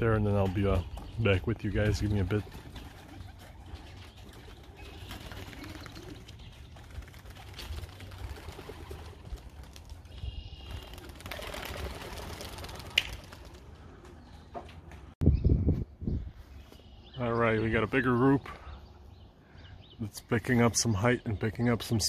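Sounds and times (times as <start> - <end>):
pigeons cooing: 0.7 - 9.3
pigeon wings flapping: 1.8 - 14.2.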